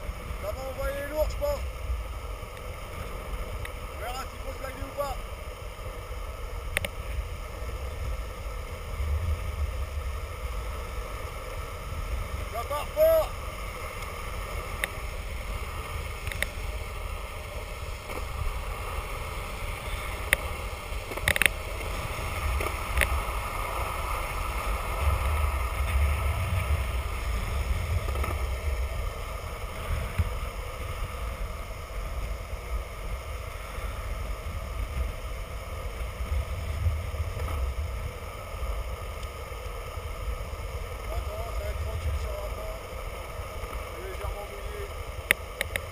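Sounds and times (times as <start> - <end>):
wheels rolling on asphalt: 0.0 - 45.9
wind noise on microphone: 14.2 - 42.8.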